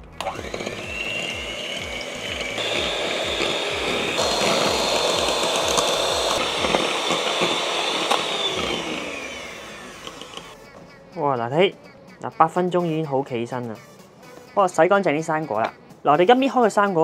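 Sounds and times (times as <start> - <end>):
electric hand mixer whining: 0.0 - 10.6.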